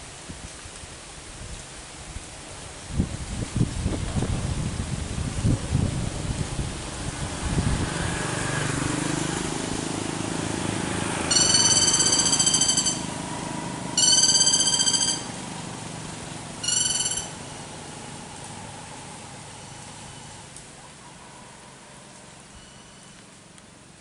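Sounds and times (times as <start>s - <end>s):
woodpecker rattling calls: 11.3s - 13.2s, 14.0s - 15.4s, 16.6s - 17.7s.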